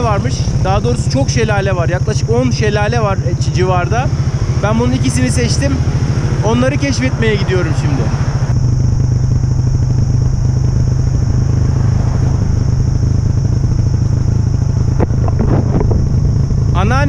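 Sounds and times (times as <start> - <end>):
motorbike engine rumble: 0.0 - 17.0.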